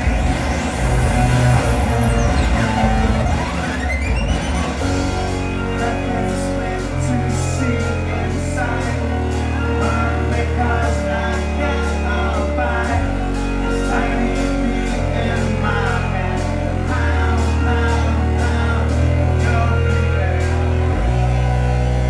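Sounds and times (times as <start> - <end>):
steady ticking beat: 0.0 - 11.2
deep sustained bass notes: 0.0 - 22.0.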